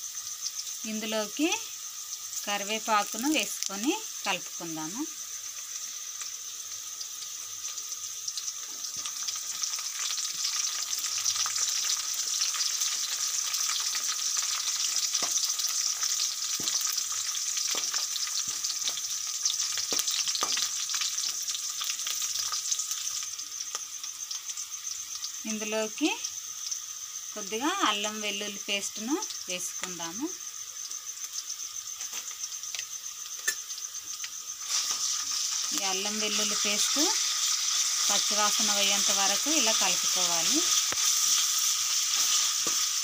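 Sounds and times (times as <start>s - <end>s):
food sizzling in hot oil: 0.0s - 43.0s
spoon scraping and tapping pan: 33.4s - 33.6s.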